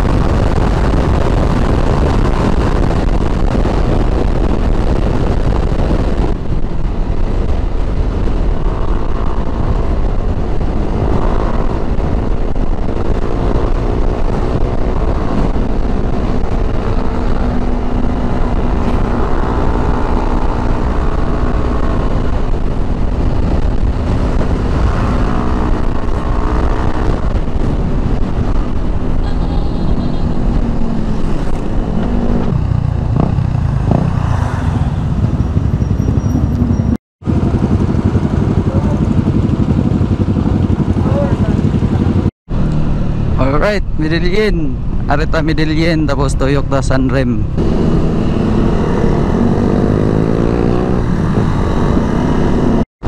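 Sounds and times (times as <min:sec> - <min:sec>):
wind and road noise rumble: 0:00.0 - 0:52.9
motorcycle engine running: 0:35.1 - 0:43.6.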